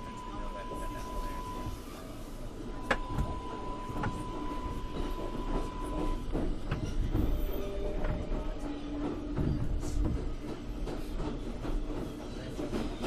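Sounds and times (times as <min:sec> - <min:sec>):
train low rumble: 0:00.0 - 0:13.0.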